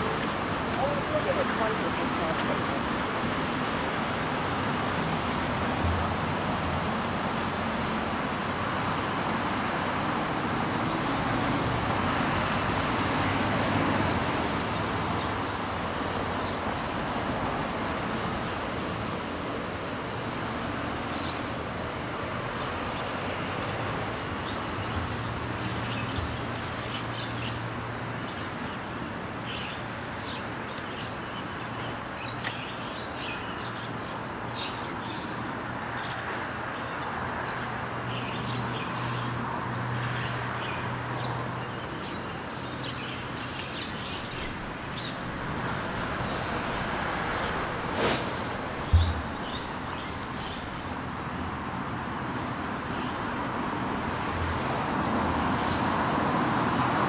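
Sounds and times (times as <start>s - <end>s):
road traffic hum: 0.0s - 57.0s
birds chirping: 40.0s - 48.2s, 48.8s - 51.0s.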